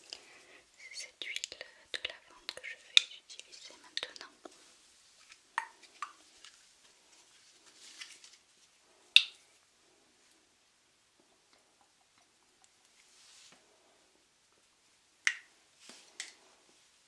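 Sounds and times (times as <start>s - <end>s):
soft brushing: 2.2s - 8.9s, 12.9s - 14.0s.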